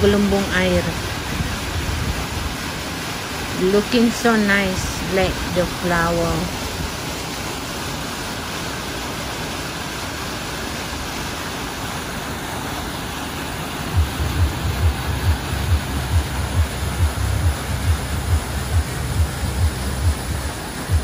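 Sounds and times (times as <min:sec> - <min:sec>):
fountain splashing into water: 0:00.0 - 0:21.0
low thumps: 0:14.0 - 0:21.0.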